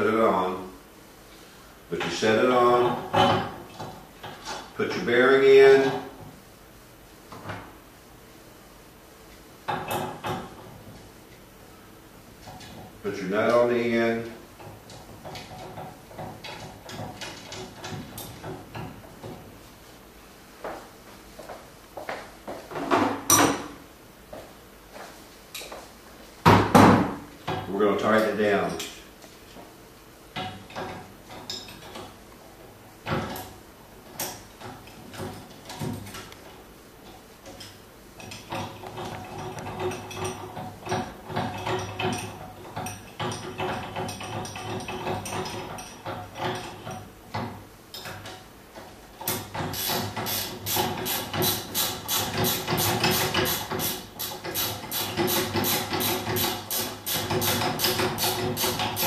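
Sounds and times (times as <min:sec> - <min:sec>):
ratchet wrench clicking: 0:49.7 - 0:59.0.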